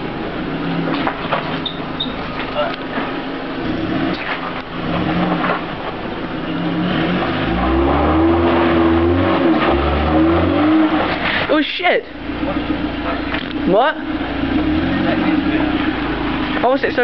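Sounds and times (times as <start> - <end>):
car engine revving hard: 3.0 - 11.5, 12.3 - 17.0.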